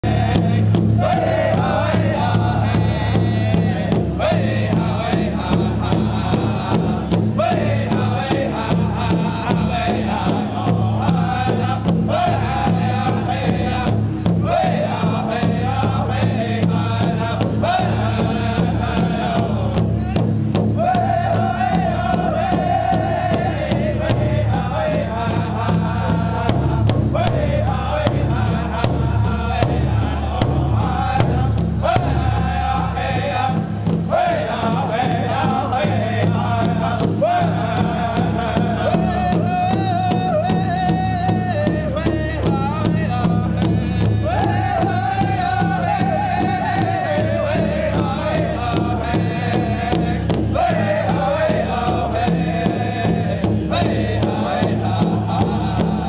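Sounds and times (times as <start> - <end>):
large hide drum beats: 0.0 - 56.0
men singing in unison: 0.0 - 56.0.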